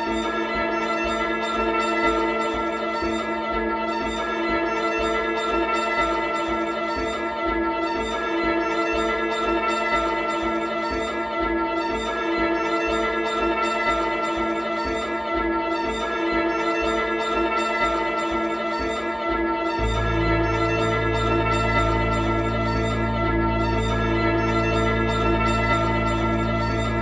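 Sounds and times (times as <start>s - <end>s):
ambient electronic drone music: 16.8s - 27.0s.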